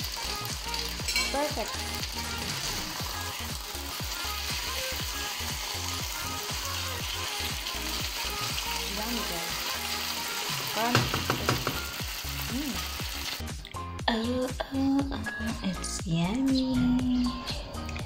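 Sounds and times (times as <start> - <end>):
noodles sizzling in a frying pan: 0.0 - 13.5.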